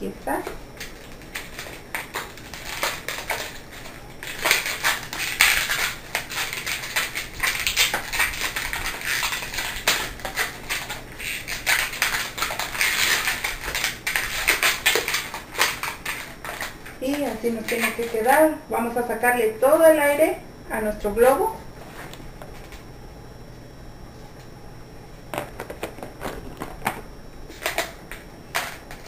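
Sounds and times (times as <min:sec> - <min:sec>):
balloons rubbing and crackling: 0:00.8 - 0:18.4, 0:25.3 - 0:27.8.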